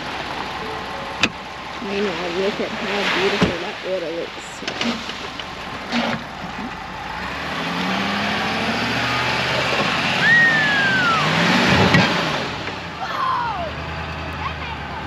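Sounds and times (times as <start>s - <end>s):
vehicle engine running: 0.0s - 15.0s
high whistle-like tone: 10.2s - 11.4s.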